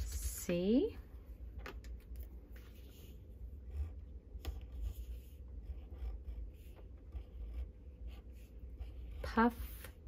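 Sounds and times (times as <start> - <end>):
pencil scratching on paper: 2.5 - 10.0.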